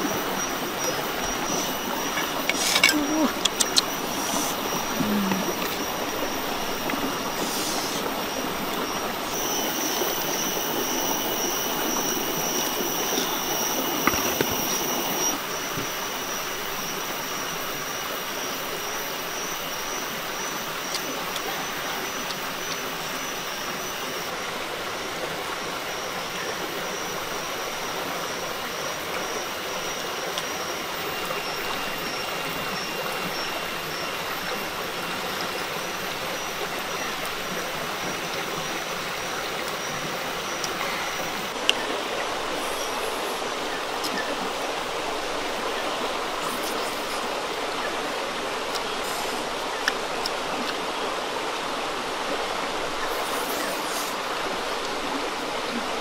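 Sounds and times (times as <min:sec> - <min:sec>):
thin high whine: 0:00.0 - 0:24.4
running water rushing: 0:00.0 - 0:56.0.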